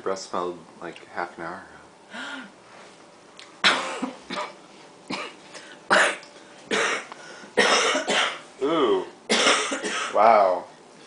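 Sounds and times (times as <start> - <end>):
person coughing: 3.6 - 10.2.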